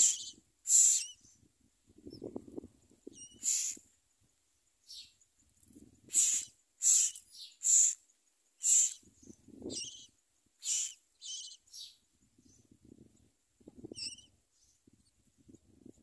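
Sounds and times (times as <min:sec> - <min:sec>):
nestlings begging calls: 0:00.0 - 0:01.2, 0:03.1 - 0:03.8, 0:06.1 - 0:08.0, 0:08.6 - 0:09.1, 0:09.7 - 0:12.0, 0:13.9 - 0:14.3.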